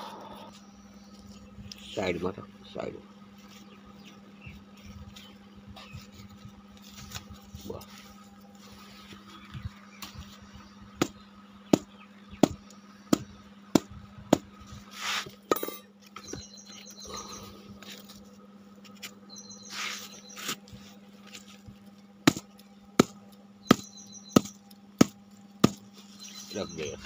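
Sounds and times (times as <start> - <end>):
sharp knocks of breaking dung cake: 22.2 - 25.8.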